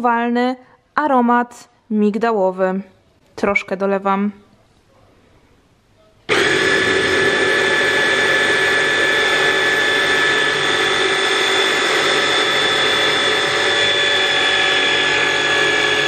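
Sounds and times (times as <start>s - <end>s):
hand blender motor whining: 6.3s - 16.0s.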